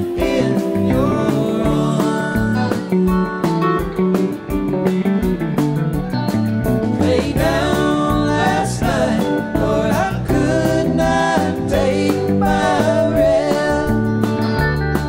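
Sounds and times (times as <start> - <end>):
men singing in harmony: 0.0 - 3.0, 7.0 - 14.2
live rock band playing: 0.0 - 15.0.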